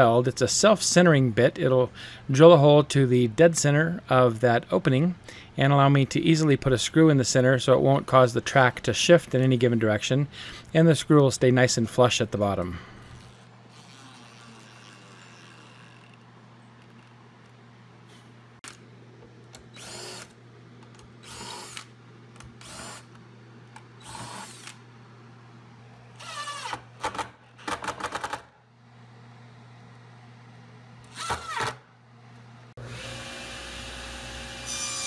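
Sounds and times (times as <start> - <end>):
cordless drill bursts: 19.8 - 20.3, 24.0 - 24.8.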